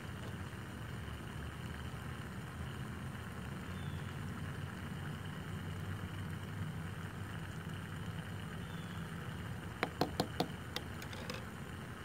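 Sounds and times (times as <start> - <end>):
spoon tapping steel cup: 9.8 - 11.4.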